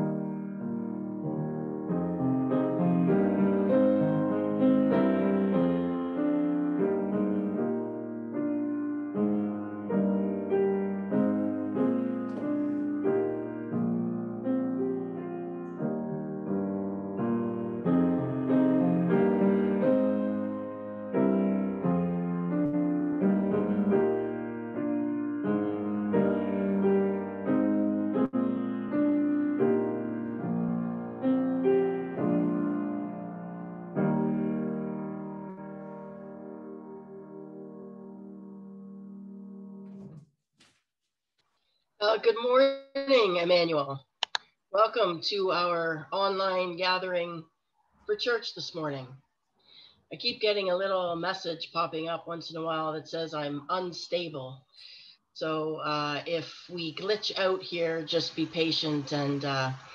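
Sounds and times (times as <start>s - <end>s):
slow solo piano piece: 0.0s - 40.2s.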